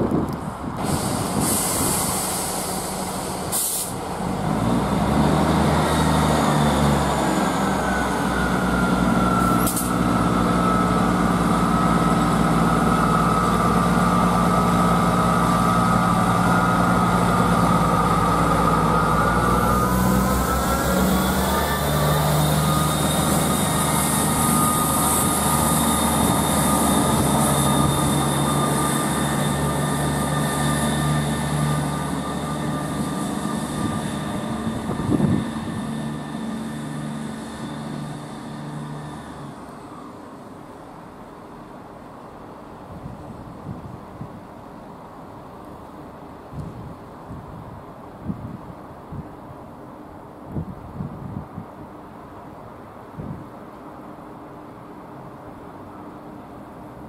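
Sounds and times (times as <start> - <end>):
engine whine: 0.0 - 42.0
diesel train engines droning: 0.0 - 57.0.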